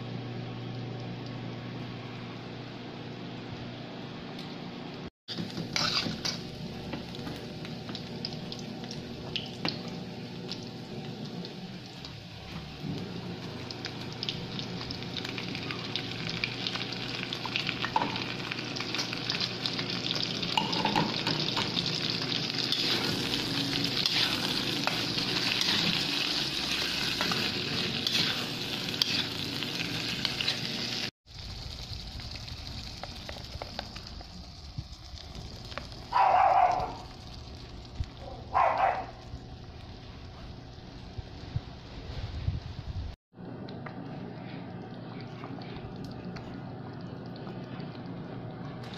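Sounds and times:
meat sizzling in a frying pan: 13.3 - 38.2.

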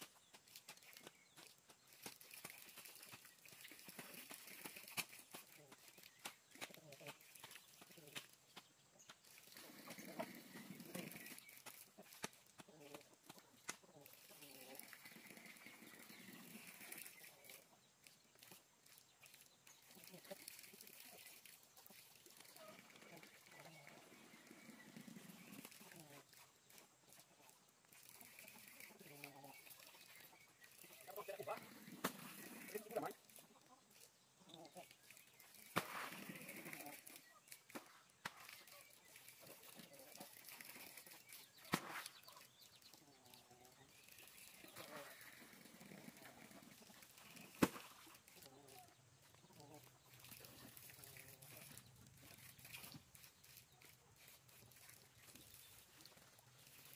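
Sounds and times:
earth dropped into muddy water: 35.6 - 36.9.

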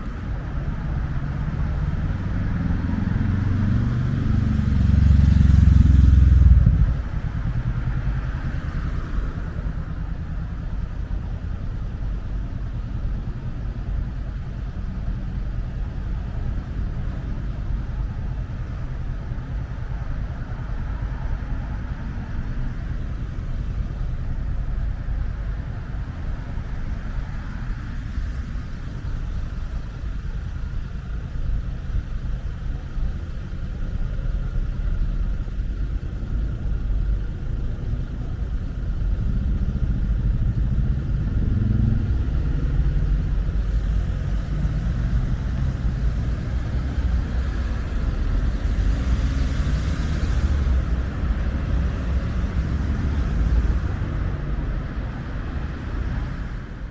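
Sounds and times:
city road traffic rumble: 0.0 - 56.9.

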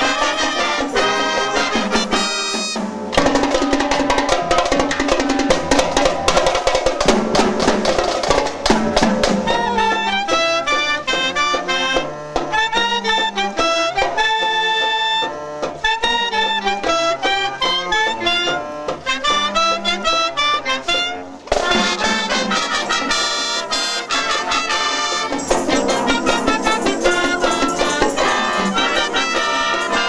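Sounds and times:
drum kit: 0.0 - 20.2, 21.0 - 30.0
wind band playing: 0.0 - 30.0.

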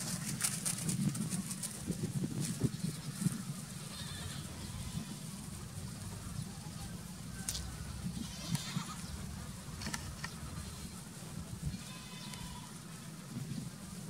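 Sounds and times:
low steady rumble: 0.0 - 14.0
goats bleating: 2.7 - 5.3, 8.1 - 9.2, 11.7 - 12.9.

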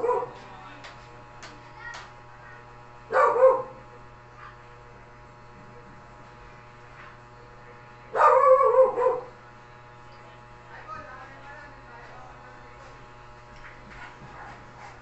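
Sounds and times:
dog barking: 0.0 - 0.4, 3.1 - 3.8, 8.1 - 9.4, 14.2 - 15.0
low electrical hum: 0.0 - 15.0.

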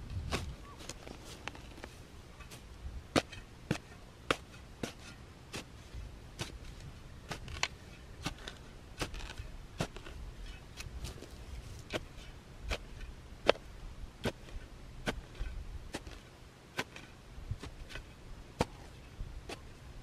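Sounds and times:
spade chopping into soil: 0.2 - 5.7, 6.4 - 6.7, 7.3 - 10.2, 11.9 - 12.1, 12.7 - 13.6, 14.2 - 16.2, 16.8 - 19.7.

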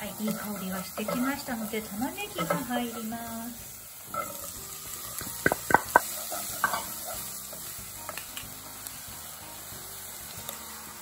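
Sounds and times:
onion sizzling: 0.0 - 11.0
bowl knocking against pot: 5.4 - 6.0.

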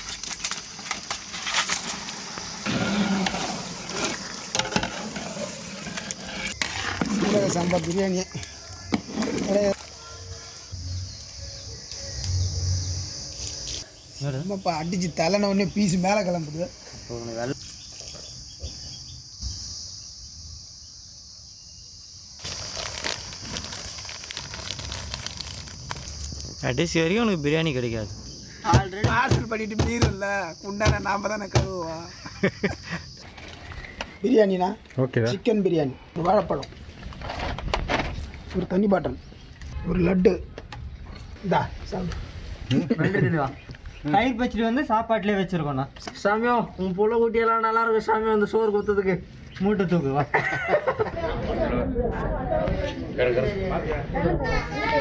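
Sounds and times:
clicks and crackles: 0.0 - 2.5
paper and leaf crinkling: 0.0 - 10.7, 22.4 - 27.0.

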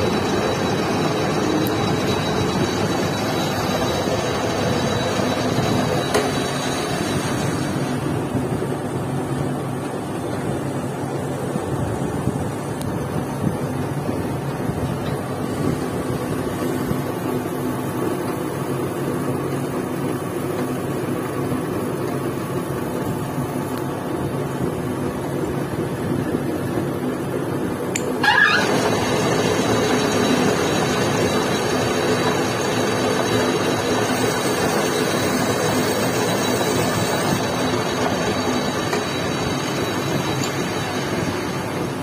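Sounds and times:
lathe squeal: 0.0 - 7.9, 28.2 - 41.9
metal lathe humming: 0.0 - 8.2, 28.0 - 42.0.

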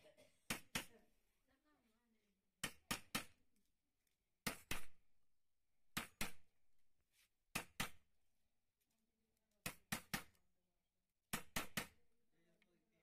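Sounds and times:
hammer striking a chisel: 2.6 - 3.4, 5.9 - 6.5, 9.6 - 10.4.

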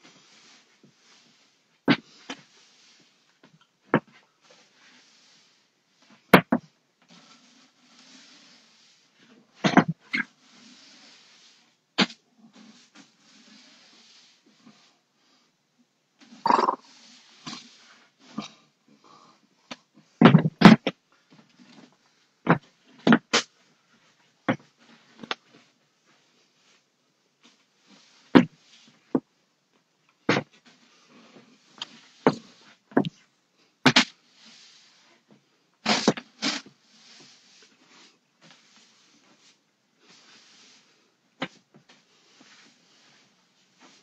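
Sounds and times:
broom bristles swishing: 0.0 - 3.5, 4.2 - 6.3, 7.0 - 15.4, 16.2 - 18.4, 34.2 - 44.0
broom knocking: 30.2 - 33.2.

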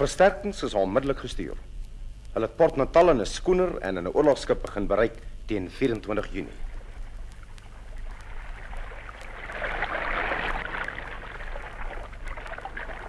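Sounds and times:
recording hum and crackle: 0.0 - 13.0
sea water washing and surging: 6.6 - 13.0.

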